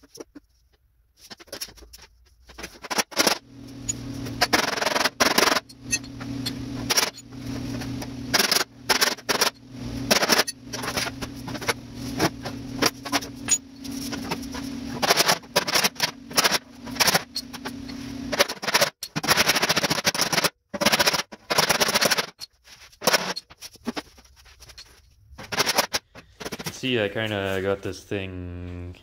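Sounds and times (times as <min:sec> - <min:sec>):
steady low hum: 0:02.5 - 0:20.0.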